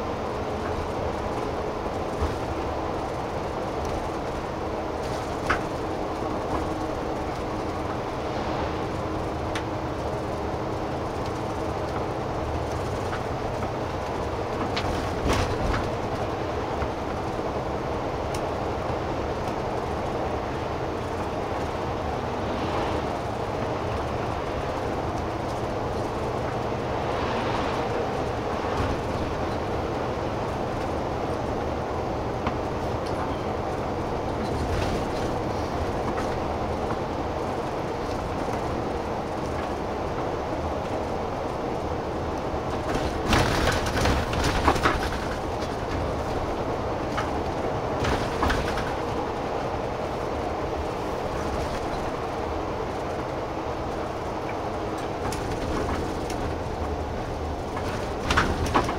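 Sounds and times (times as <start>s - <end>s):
bus engine and road rumble: 0.0s - 58.9s
clatter of knocks over bump: 14.6s - 16.1s, 42.7s - 46.4s, 47.0s - 49.2s, 57.6s - 58.9s.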